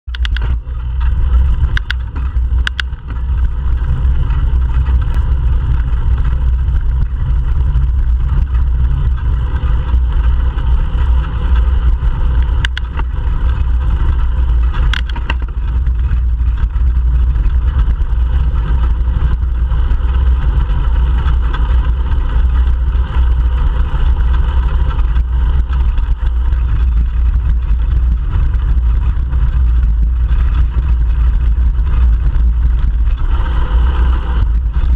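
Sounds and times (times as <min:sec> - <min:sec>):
bicycle tyre and road noise: 0:00.0 - 0:34.9
sharp clicks: 0:00.1 - 0:03.0, 0:12.4 - 0:13.1
wind buffeting microphone: 0:00.1 - 0:34.9.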